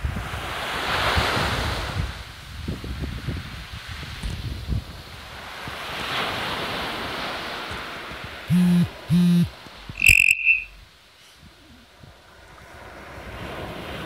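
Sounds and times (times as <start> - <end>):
surf on shingle beach: 0.0 - 9.1, 9.7 - 14.0
brief high beep: 8.5 - 10.8
loud low steady tones: 8.5 - 10.9.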